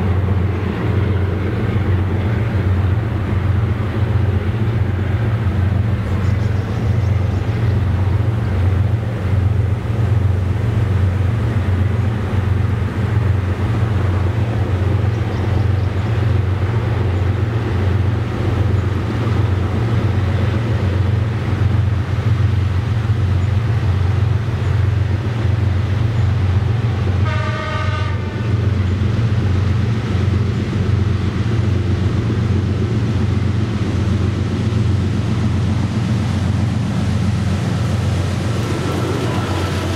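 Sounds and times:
diesel locomotive engines rumbling: 0.0s - 39.9s
train horn blast: 27.2s - 28.5s, 38.6s - 39.9s.

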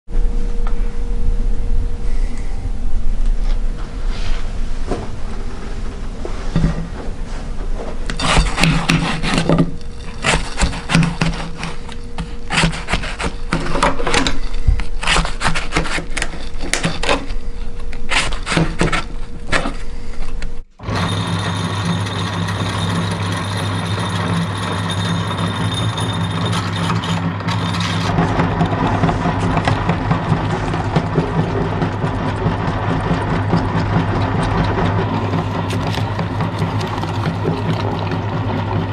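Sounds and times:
meat grinder humming and whining: 20.8s - 38.9s.

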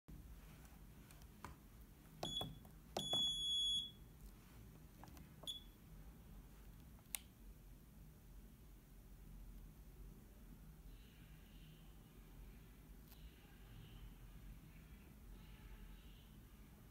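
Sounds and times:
keypad beeps: 2.2s - 4.0s, 5.4s - 5.8s.

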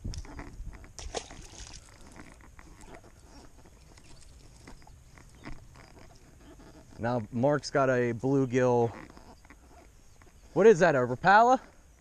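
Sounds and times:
handling clicks and rustles: 0.0s - 12.0s.

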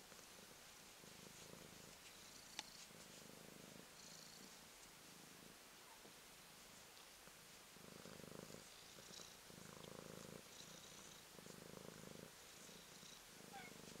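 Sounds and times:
kitten purring: 0.0s - 14.0s.

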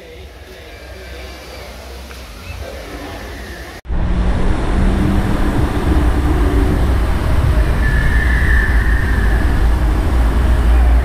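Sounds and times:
waterfall rushing roar: 1.2s - 11.0s.

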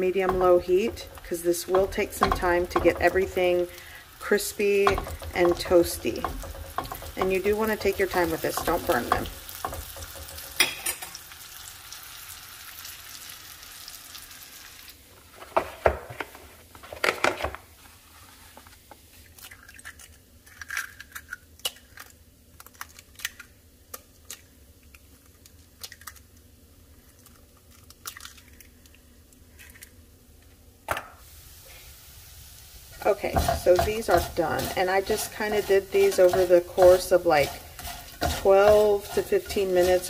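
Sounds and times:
faint frying sizzle: 0.0s - 15.4s, 31.2s - 40.0s.

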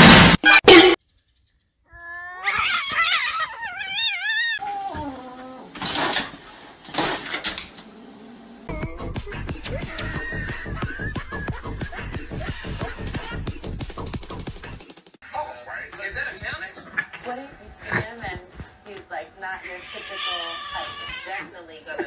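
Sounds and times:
cats yowling: 1.9s - 5.9s, 19.6s - 21.5s.

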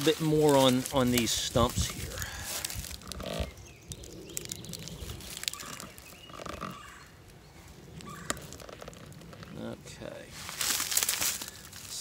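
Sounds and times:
rustling in dry leaves: 0.0s - 12.0s
short croak-like sounds: 2.8s - 7.2s, 7.9s - 9.7s.

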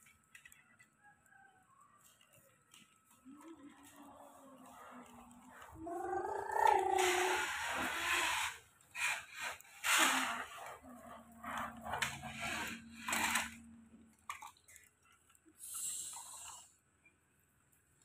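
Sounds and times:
toy wheels scraping on wood: 3.8s - 13.8s.

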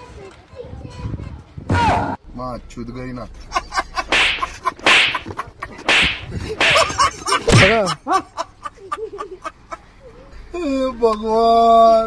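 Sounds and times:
swishing slaps: 4.1s - 7.9s.

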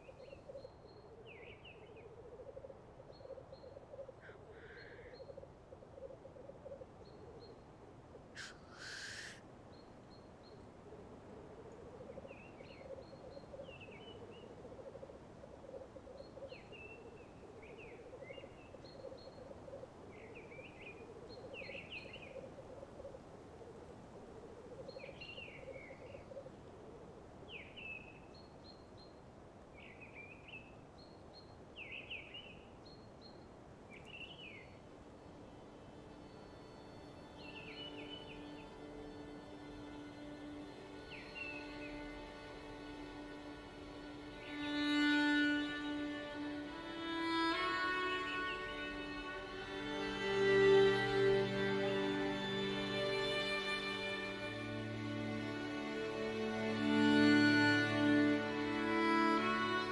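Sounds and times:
small birds chirping: 0.0s - 10.8s, 27.5s - 56.8s
black grouse hissing call: 4.2s - 5.1s, 8.3s - 9.4s.

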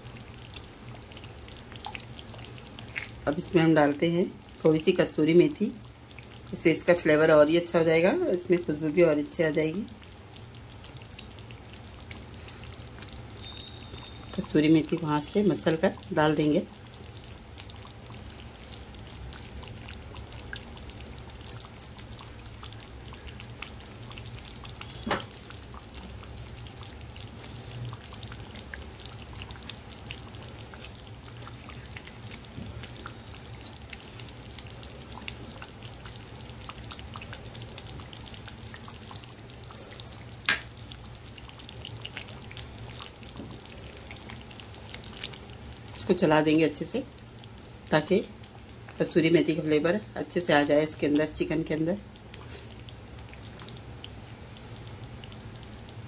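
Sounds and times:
gravy bubbles popping: 0.0s - 3.3s, 22.2s - 46.0s
low steady hum: 0.0s - 56.0s.

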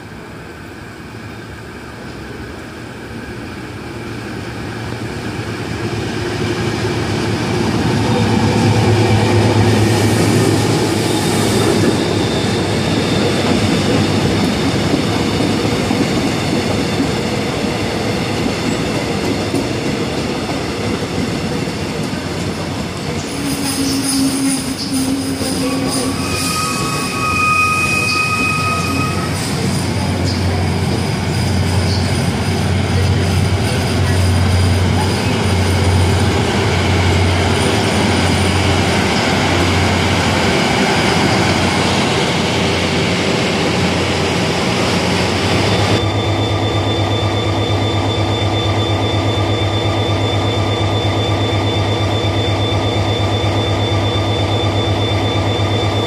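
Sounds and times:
passenger train rolling: 0.0s - 56.0s
train wheel squeal: 8.0s - 15.6s, 22.6s - 56.0s.

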